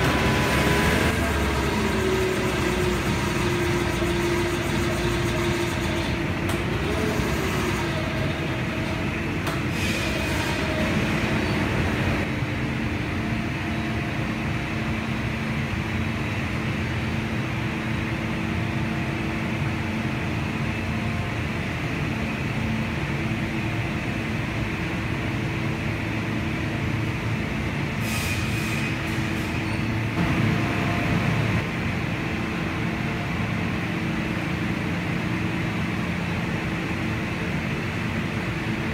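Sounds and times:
sawmill machinery hum: 0.0s - 38.9s.

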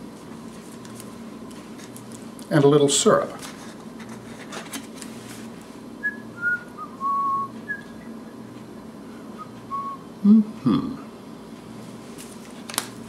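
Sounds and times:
person whistling a tune: 6.0s - 8.1s, 9.4s - 10.0s.

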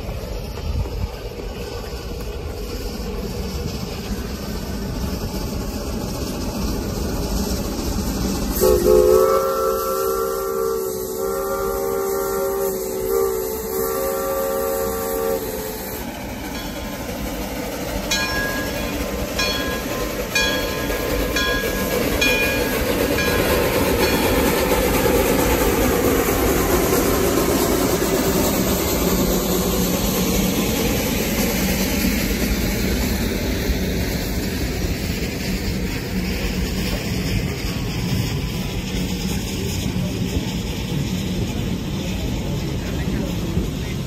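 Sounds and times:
steam locomotive rumble: 0.0s - 44.0s
train cars clickety-clack: 0.0s - 44.0s
steam whistle: 8.5s - 16.2s
locomotive bell ringing: 16.5s - 25.2s.

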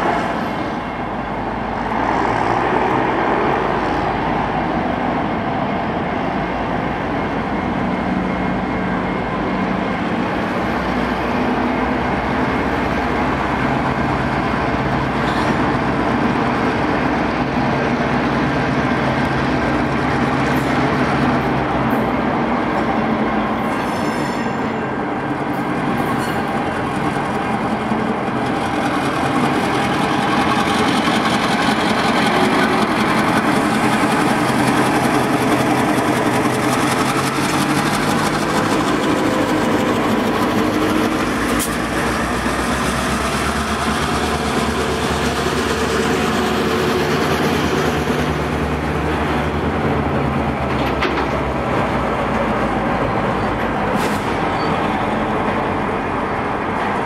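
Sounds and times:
diesel locomotive engine drone: 0.0s - 57.0s
freight cars rolling: 0.0s - 57.0s.

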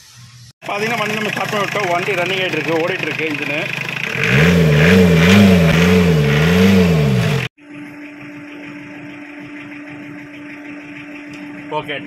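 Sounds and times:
diesel engine running: 0.6s - 12.0s.

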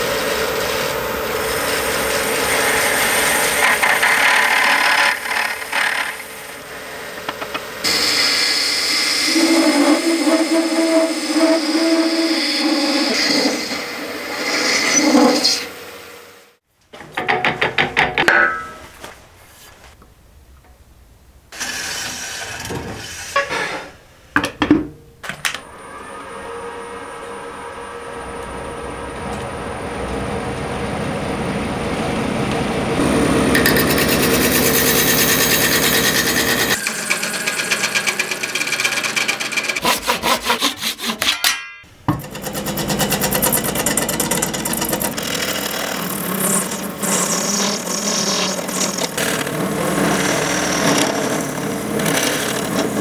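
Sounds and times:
gouge scraping on wood lathe: 1.6s - 6.5s, 33.6s - 41.3s, 42.2s - 53.0s.

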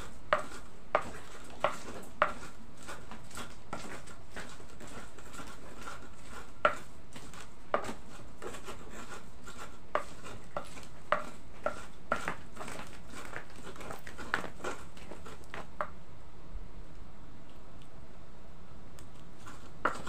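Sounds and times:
pestle scraping rubs: 0.0s - 15.9s, 19.4s - 20.0s
pestle knocking on mortar: 0.3s - 5.0s, 5.8s - 8.8s, 9.5s - 14.7s.

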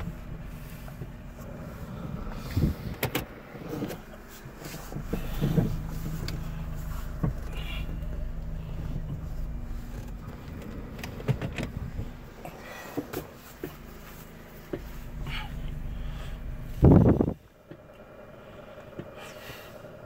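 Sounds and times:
car engine humming: 0.0s - 20.0s
sharp clicks and knocks: 9.9s - 12.1s.

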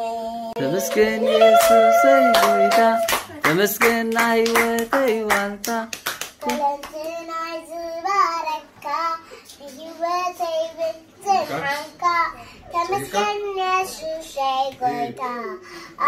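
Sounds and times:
girl singing: 0.0s - 3.6s, 6.4s - 15.6s
hands clapping a beat: 0.9s - 7.2s.

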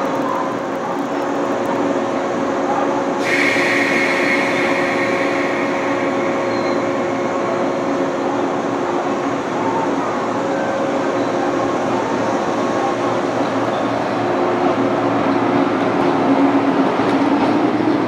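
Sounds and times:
electric train low hum: 0.0s - 18.0s
hiss with high squeal: 3.2s - 10.7s.

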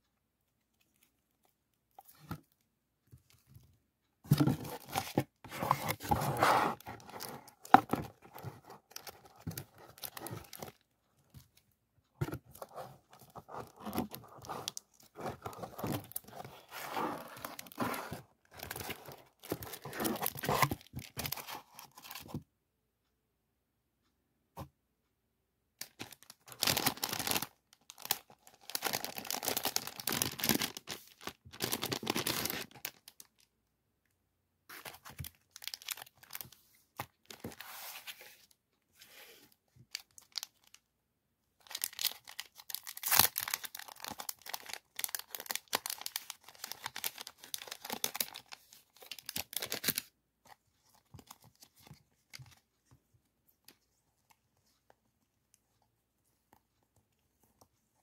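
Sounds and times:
plastic packaging crinkling: 4.3s - 10.8s, 25.8s - 33.4s, 34.9s - 36.5s, 41.6s - 50.1s.

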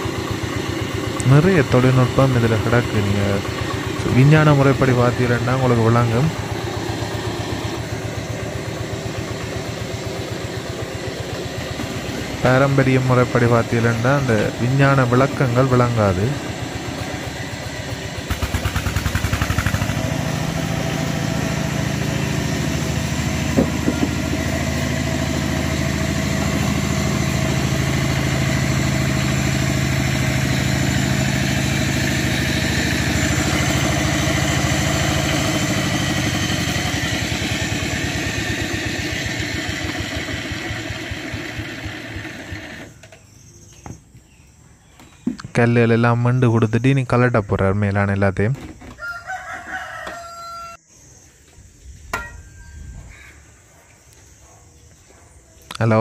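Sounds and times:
diesel engine running steadily: 0.0s - 43.5s.

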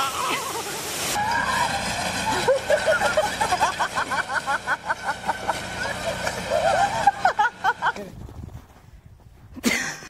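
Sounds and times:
person giggling: 9.6s - 10.0s.

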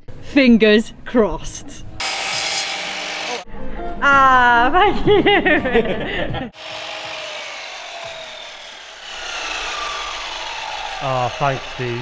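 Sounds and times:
power saw winding down: 2.0s - 3.4s, 6.6s - 12.0s.

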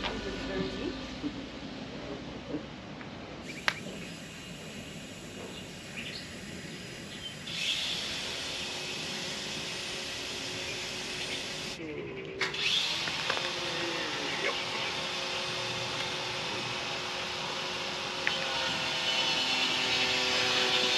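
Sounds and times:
tube polisher abrasive hiss: 3.5s - 11.8s.

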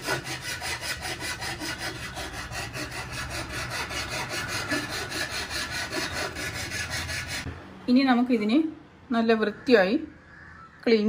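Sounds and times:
hand saw cutting bamboo: 0.0s - 7.5s.

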